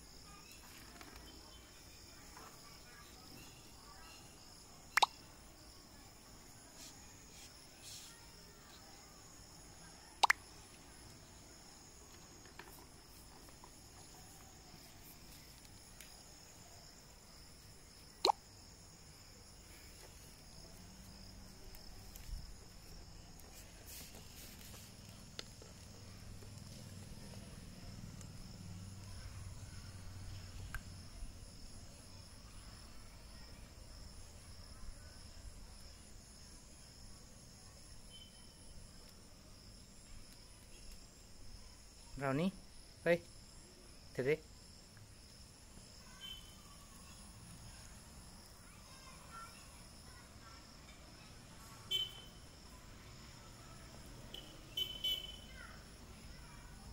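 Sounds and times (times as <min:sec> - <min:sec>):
crickets chirping: 0:00.0 - 0:56.9
sharp plop-like clicks: 0:04.9 - 0:05.2, 0:10.2 - 0:10.4, 0:18.2 - 0:18.5.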